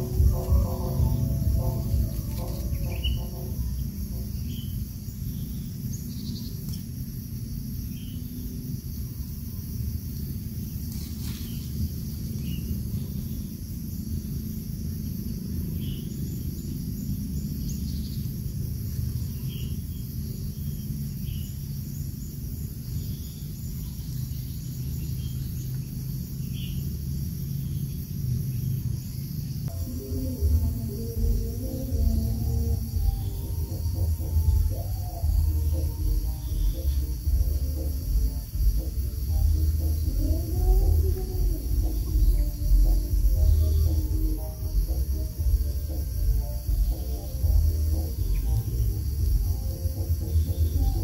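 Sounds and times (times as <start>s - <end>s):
background music: 0.0s - 4.6s, 29.7s - 51.0s
high insect hum: 0.0s - 51.0s
steady low rumble: 0.0s - 51.0s.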